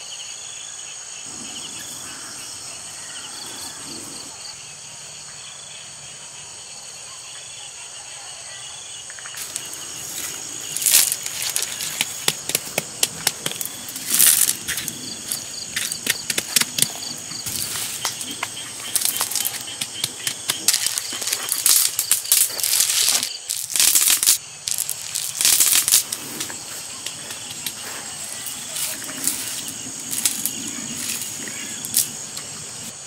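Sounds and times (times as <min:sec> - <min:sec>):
insects trilling: 0:00.0 - 0:33.0
pebbles clicking together: 0:09.4 - 0:26.2, 0:28.5 - 0:32.2
pebbles scraping on gritty ground: 0:09.4 - 0:32.9.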